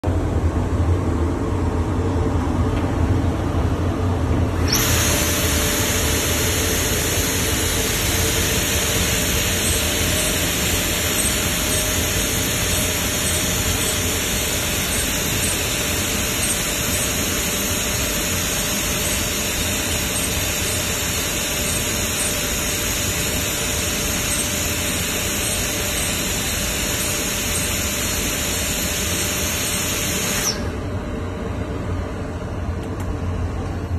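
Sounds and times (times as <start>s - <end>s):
low machine hum: 0.0s - 33.9s
router high-pitched hiss: 4.6s - 30.8s.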